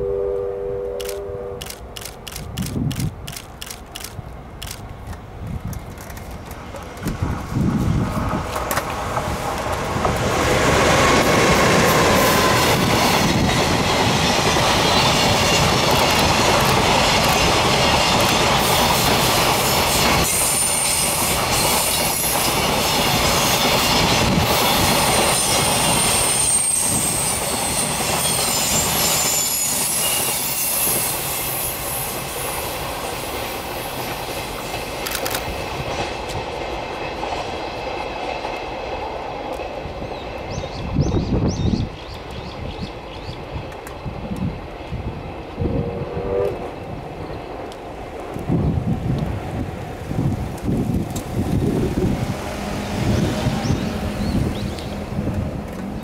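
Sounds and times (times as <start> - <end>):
train rumble and rail clatter: 1.0 - 56.0
high wheel squeal: 24.6 - 32.2.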